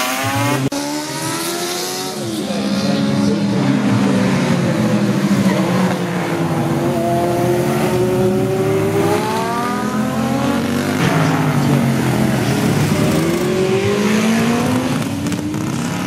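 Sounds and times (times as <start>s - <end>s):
racing motorcycles passing: 0.0s - 16.0s
motorcycle engine accelerating: 4.3s - 16.0s.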